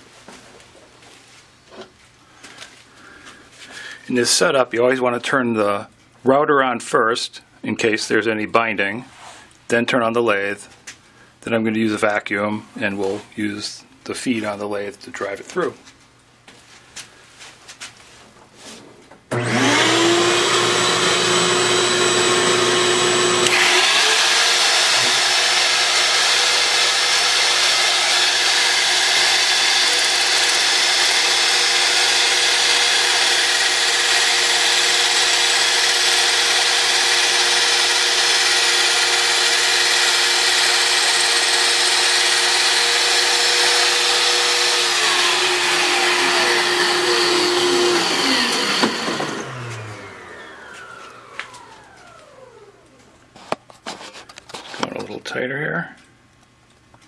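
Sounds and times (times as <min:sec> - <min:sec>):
router cutting wood: 0:19.3 - 0:52.9
router whine: 0:19.3 - 0:53.1
vacuum cleaner hiss: 0:45.1 - 0:51.8.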